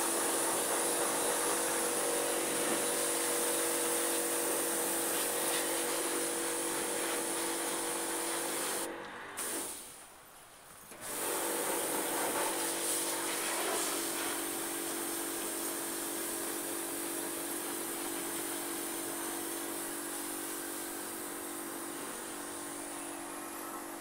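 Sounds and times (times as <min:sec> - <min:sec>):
pump humming: 0:00.0 - 0:09.8, 0:16.0 - 0:24.0
water spraying from wand: 0:00.0 - 0:09.8, 0:11.2 - 0:24.0.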